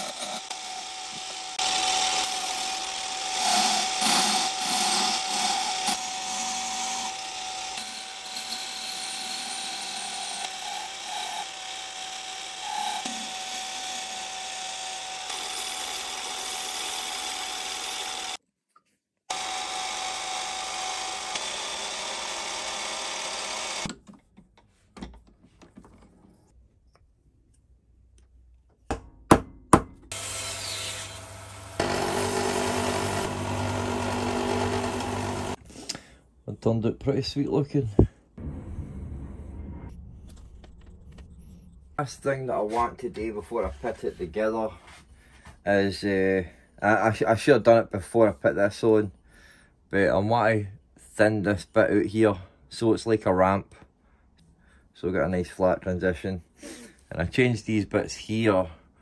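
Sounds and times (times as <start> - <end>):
power tool running on wood: 0.0 - 18.4, 19.3 - 23.9, 30.1 - 35.6
motor humming: 30.1 - 35.6.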